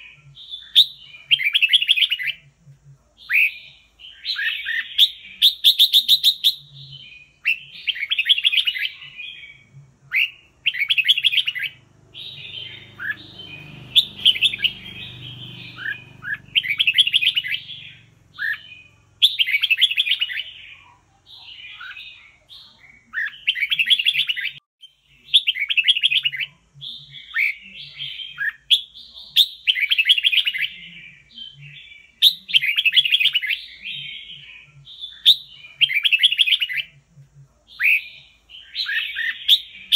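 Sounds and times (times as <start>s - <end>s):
bird singing warbled phrases: 0.0s - 39.9s.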